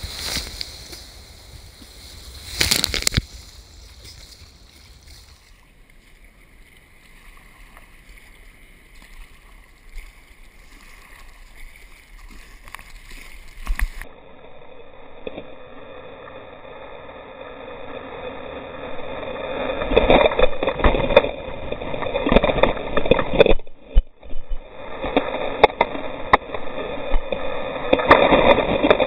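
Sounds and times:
water sloshing around kayak: 0.0s - 14.1s.

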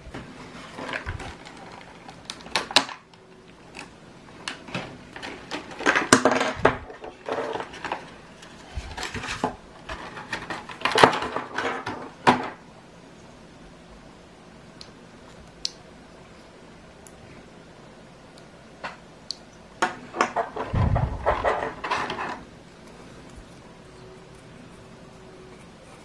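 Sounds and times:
plastic packaging crinkling: 0.6s - 3.0s
sharp plastic clicks and snaps: 14.8s - 15.8s.

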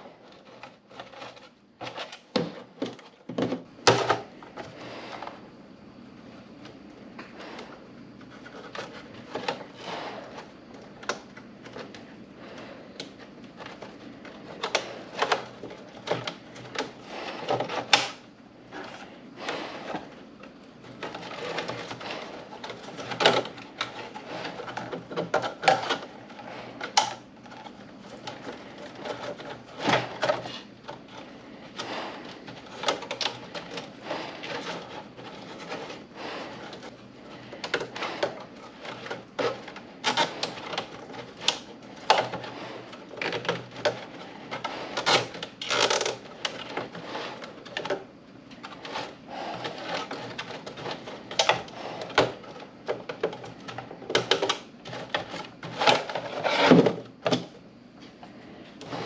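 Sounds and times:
plastic clicks and knocks: 0.3s - 4.7s.

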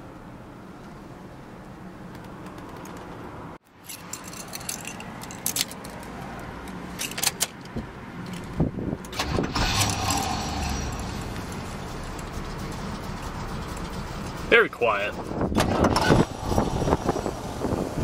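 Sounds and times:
car keys jangling: 3.8s - 6.1s, 6.9s - 8.6s.

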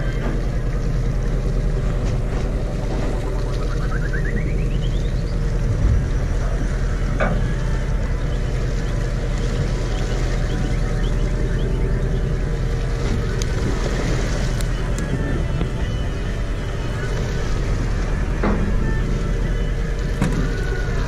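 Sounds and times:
boat engine humming: 0.0s - 21.0s
wind on microphone: 5.2s - 21.0s.

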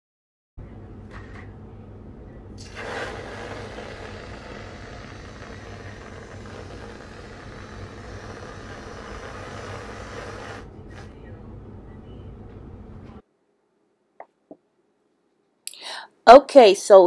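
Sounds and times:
aerosol can spraying hiss: 2.6s - 11.1s.

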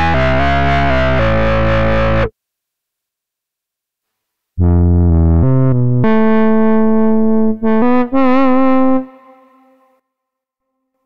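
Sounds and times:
synthesizer saxophone lead: 4.6s - 9.9s.

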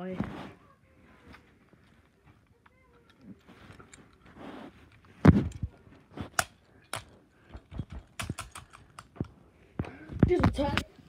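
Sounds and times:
soft rustle: 0.0s - 7.7s
handling clicks and knocks: 1.8s - 10.9s.

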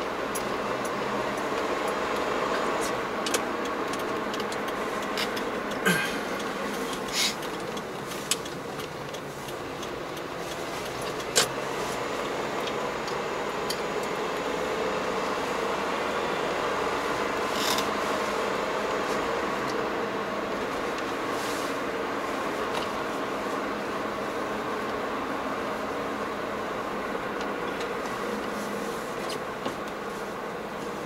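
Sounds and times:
road and tyre noise in car: 0.0s - 31.0s
faint clicks and creaks: 0.3s - 14.5s.

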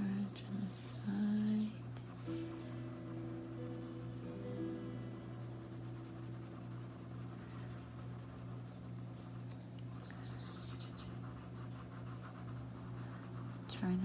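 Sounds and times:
low hum: 0.0s - 14.0s
pencil shading on paper: 0.0s - 14.0s.

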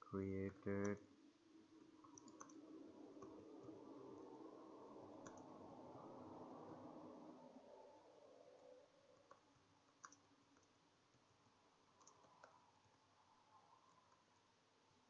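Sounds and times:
low room hum: 0.0s - 15.0s
keyboard typing: 2.0s - 2.6s, 5.2s - 5.5s, 9.2s - 11.2s, 11.9s - 13.0s.

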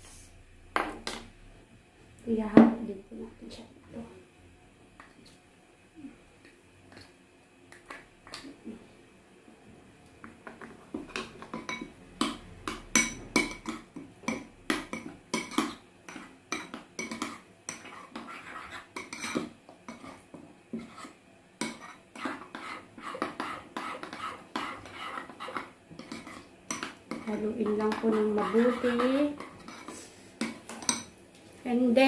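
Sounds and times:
spoon clinking and scraping bowl: 10.6s - 20.2s, 20.8s - 31.1s.

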